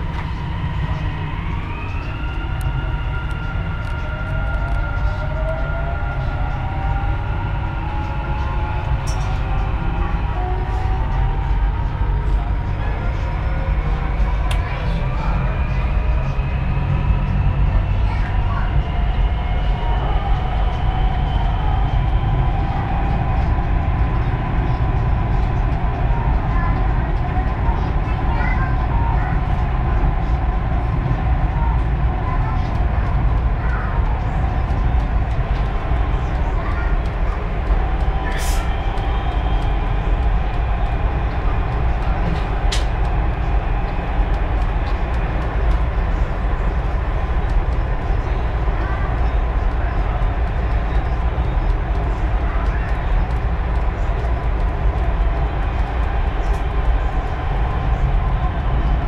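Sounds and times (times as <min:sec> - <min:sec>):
train rumble from inside: 0:00.0 - 0:59.0.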